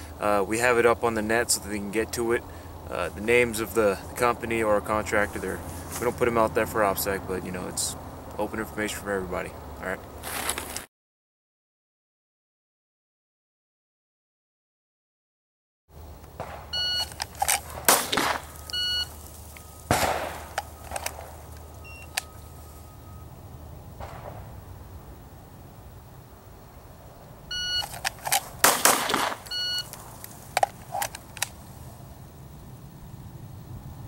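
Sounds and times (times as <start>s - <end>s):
shot timer beeps: 16.8s - 17.1s, 18.6s - 19.1s, 21.8s - 22.4s, 27.5s - 27.9s, 29.4s - 29.9s
handgun firing: 17.4s - 18.5s, 19.9s - 21.4s, 28.0s - 29.5s.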